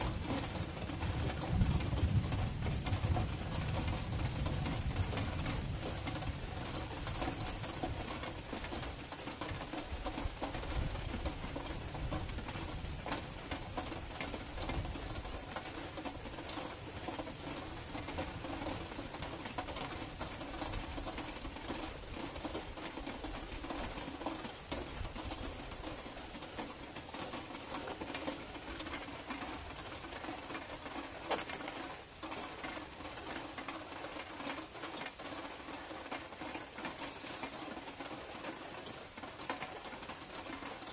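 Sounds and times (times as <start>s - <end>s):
low rumble of thunder: 0.0s - 8.9s
steady rain falling: 0.0s - 40.9s.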